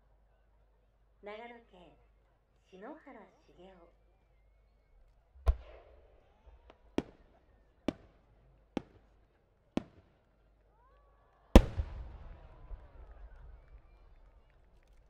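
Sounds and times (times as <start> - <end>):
firework sharp cracks: 5.4 - 8.1, 9.8 - 10.1, 11.6 - 13.7
loud firework boom: 11.6 - 12.8.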